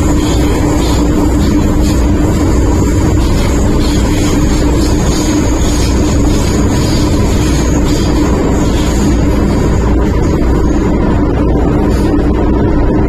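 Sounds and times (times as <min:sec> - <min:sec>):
constant electric hum: 0:00.0 - 0:13.0
train rumbling: 0:00.0 - 0:13.0.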